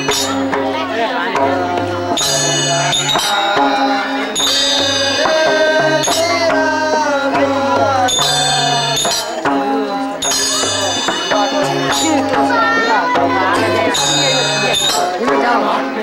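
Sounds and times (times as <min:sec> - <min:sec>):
hand drum beat: 0:00.0 - 0:16.0
melody of held notes: 0:00.0 - 0:16.0.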